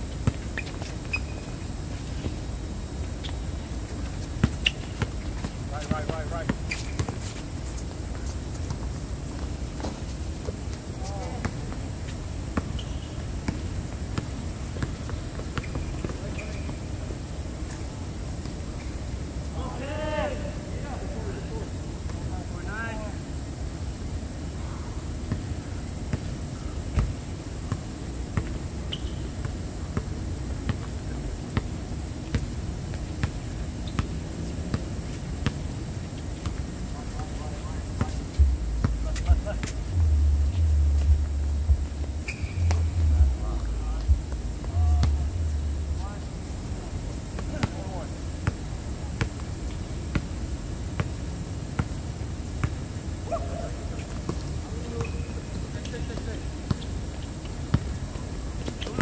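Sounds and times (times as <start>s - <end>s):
basketball bouncing on hard court: 33.2s - 34.1s
low rumble: 38.3s - 46.6s.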